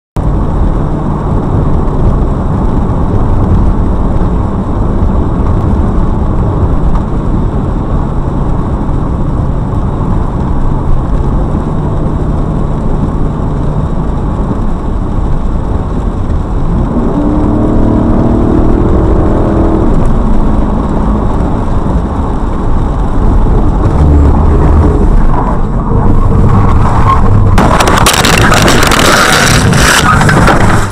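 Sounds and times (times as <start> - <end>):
car interior road noise: 0.2 - 30.9
rising engine-like tone: 16.6 - 22.6, 23.2 - 30.3.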